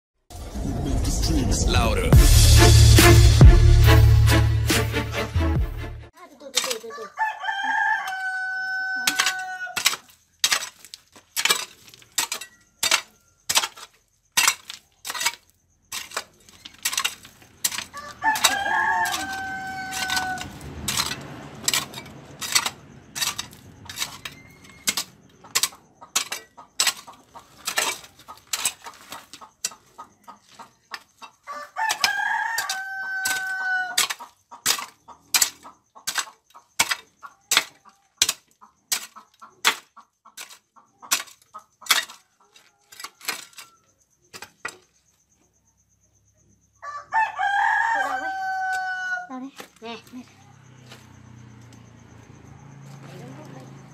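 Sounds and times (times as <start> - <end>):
hoe chopping stony dirt: 6.4 - 7.0, 7.8 - 31.2, 31.8 - 44.9
rooster crowing: 6.8 - 9.8, 17.7 - 22.2, 31.4 - 34.1, 46.8 - 49.3.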